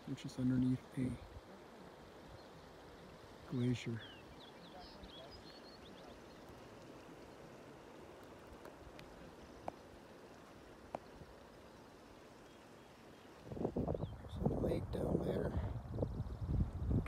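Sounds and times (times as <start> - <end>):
faint outdoor background noise: 0.0 - 17.0
high bird chirps: 3.9 - 6.6.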